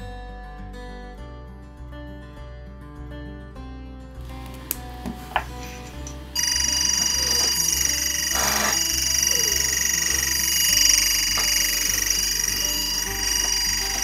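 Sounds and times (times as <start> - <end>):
timecode signal tones: 6.4 - 14.0.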